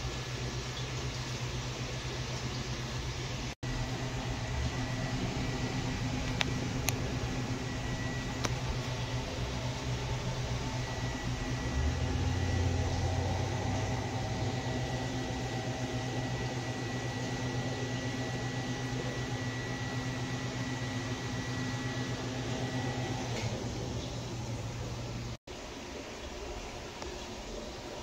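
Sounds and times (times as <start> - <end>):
aquarium equipment humming: 0.0 - 28.0
faint high whine: 3.6 - 23.5.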